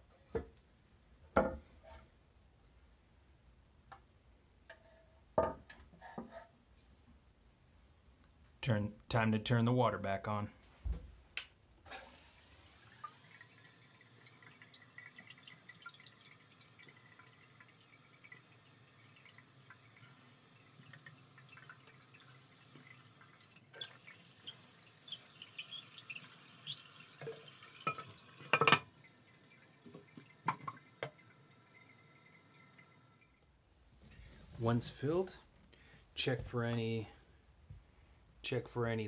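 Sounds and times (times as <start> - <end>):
toilet tank refilling hiss: 11.9 - 33.4
water drips and ticks: 13.0 - 28.6, 29.3 - 33.3.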